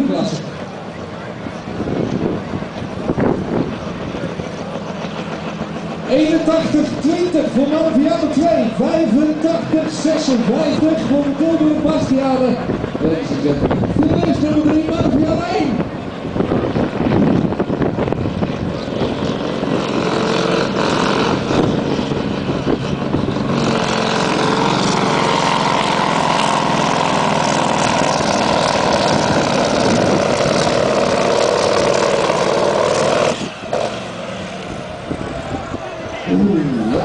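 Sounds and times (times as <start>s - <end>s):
diesel truck engine under load: 15.8s - 37.0s.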